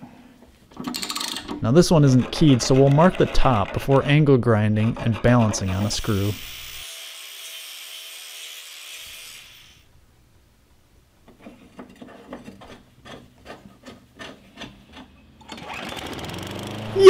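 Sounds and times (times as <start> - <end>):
angle grinder grinding steel: 2.0 - 9.6.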